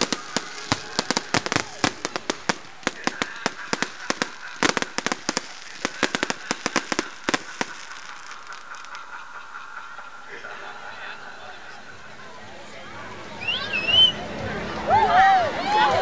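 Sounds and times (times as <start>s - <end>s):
fireworks banging and crackling: 0.0s - 10.7s.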